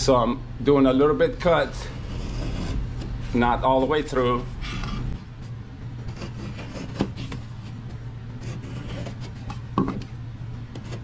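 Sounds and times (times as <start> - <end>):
knife scraping drywall: 1.8 - 2.8, 6.1 - 7.4, 8.4 - 9.6.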